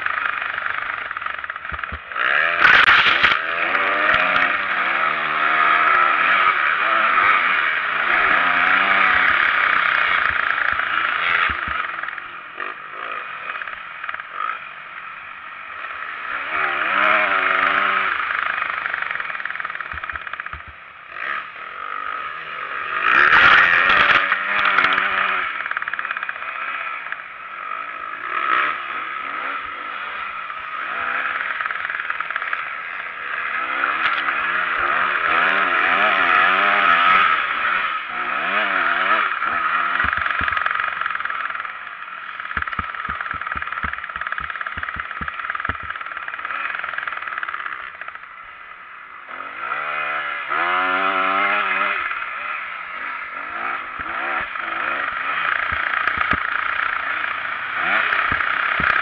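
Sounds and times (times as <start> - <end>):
motocross bike engine revving: 0.0 - 59.0
camera rattling: 0.7 - 3.4, 10.1 - 12.1, 19.4 - 20.8, 40.0 - 41.5, 42.5 - 47.7, 55.7 - 56.7, 58.3 - 59.0.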